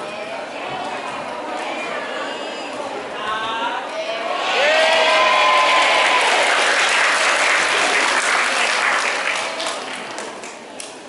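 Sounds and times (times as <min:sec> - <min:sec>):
audience applauding: 0:04.6 - 0:10.6.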